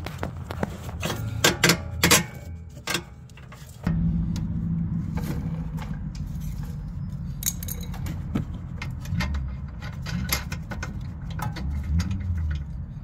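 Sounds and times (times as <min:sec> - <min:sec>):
low steady hum: 0:01.0 - 0:12.8
metal bolts clinking: 0:05.8 - 0:12.7.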